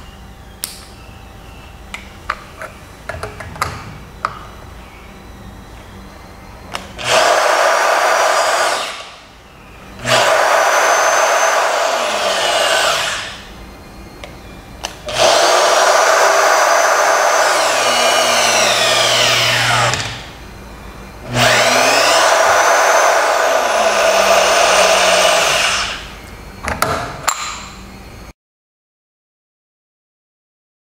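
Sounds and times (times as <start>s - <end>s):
electric motor whining: 6.6s - 13.6s, 14.9s - 26.4s.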